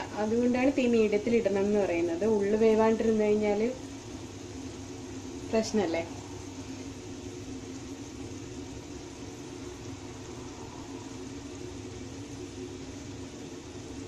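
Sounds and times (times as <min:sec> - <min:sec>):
batter sizzling in oil: 0:00.0 - 0:14.0
low hum: 0:00.0 - 0:14.0.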